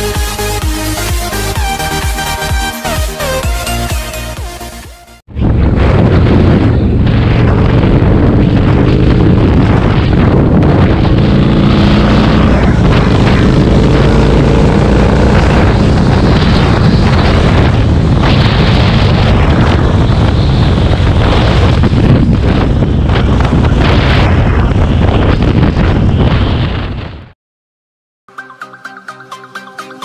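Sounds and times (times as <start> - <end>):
wind buffeting microphone: 5.3 - 27.4
motorcycle engine running: 5.5 - 25.4.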